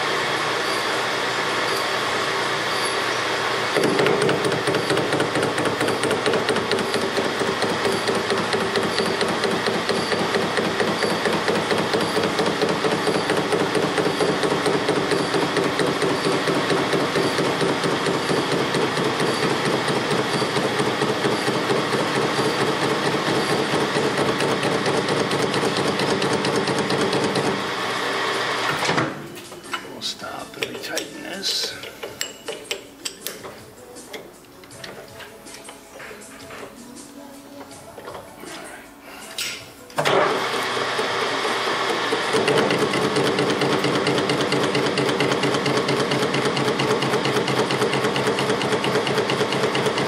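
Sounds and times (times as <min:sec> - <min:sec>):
lathe machine hum: 0:00.0 - 0:28.9, 0:40.1 - 0:50.0.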